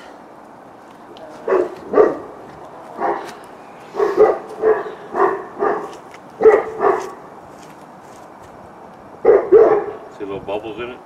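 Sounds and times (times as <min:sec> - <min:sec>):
dog barking deeply: 0:01.4 - 0:07.3, 0:09.2 - 0:10.2.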